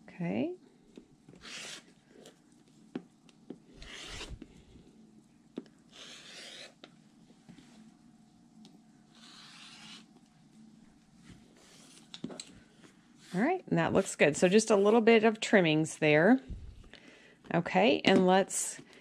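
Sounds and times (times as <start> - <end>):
rotary cutter slicing fabric: 1.4 - 1.9, 3.8 - 4.4, 5.9 - 6.8, 9.2 - 10.1.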